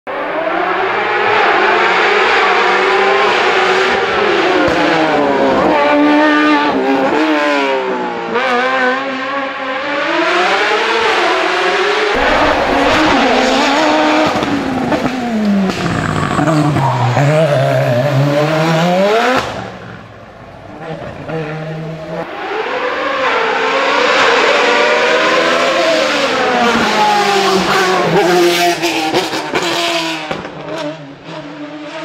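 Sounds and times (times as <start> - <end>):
racing engine at high revs: 0.1 - 20.0.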